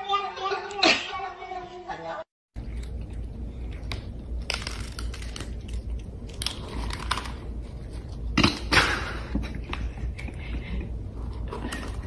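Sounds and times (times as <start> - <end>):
cats crunching dry kibble: 2.6 - 8.0.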